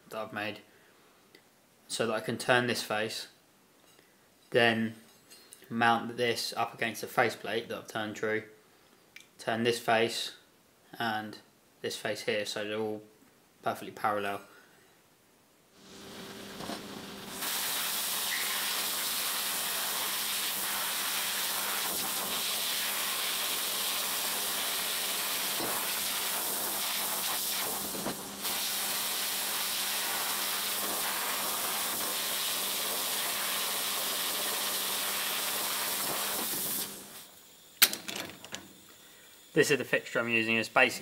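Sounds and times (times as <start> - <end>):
blast gun hissing: 15.8 - 38.0.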